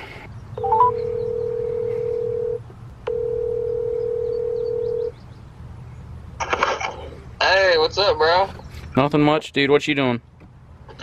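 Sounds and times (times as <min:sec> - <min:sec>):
phone ringback tone: 0:00.6 - 0:05.1.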